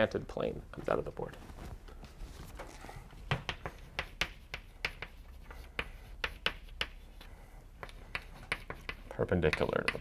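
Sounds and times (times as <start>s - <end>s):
chalk tapping and scratching on blackboard: 3.2s - 10.0s.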